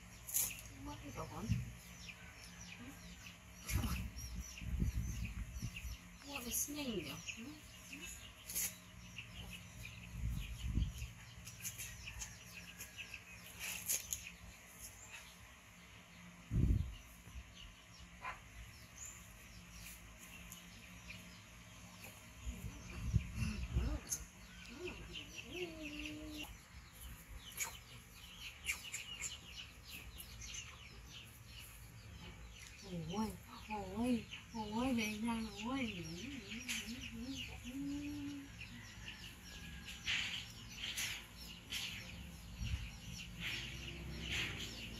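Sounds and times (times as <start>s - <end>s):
birds chirping: 0.0s - 44.9s
loud sharp bird chirps: 26.9s - 30.8s.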